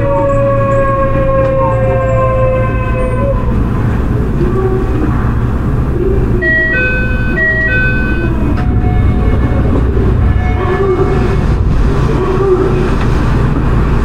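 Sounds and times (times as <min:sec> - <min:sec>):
low train running rumble: 0:00.0 - 0:14.0
train inverter tones: 0:00.0 - 0:14.0
two-tone chime: 0:06.4 - 0:09.1.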